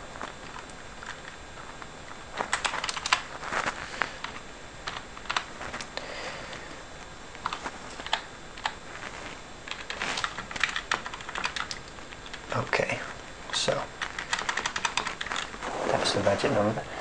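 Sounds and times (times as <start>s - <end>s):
typing on computer keyboard: 2.5s - 3.2s, 9.7s - 12.4s, 14.0s - 15.5s.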